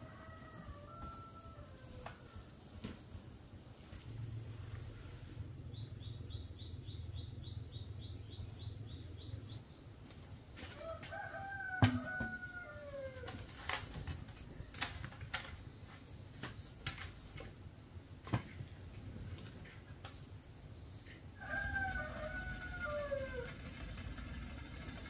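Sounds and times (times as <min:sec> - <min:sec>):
rooster crowing: 0:00.0 - 0:02.4, 0:10.7 - 0:13.4, 0:21.4 - 0:23.6.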